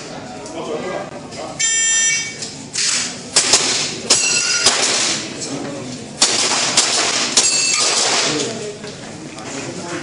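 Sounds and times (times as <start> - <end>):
ringing tone: 1.6 - 2.4
pistol shots: 3.4 - 5.3, 6.2 - 8.5.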